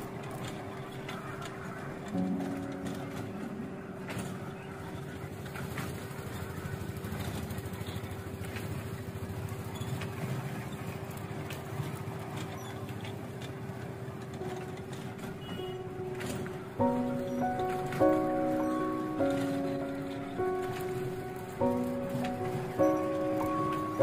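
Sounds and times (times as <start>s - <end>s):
wheels clicking on rails: 0.0s - 24.0s.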